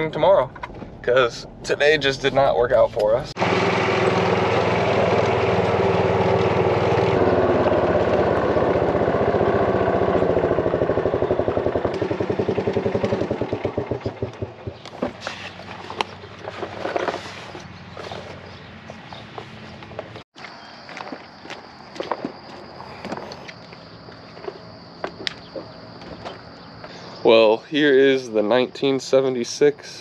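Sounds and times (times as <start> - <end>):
golf cart engine running: 3.4 - 20.1.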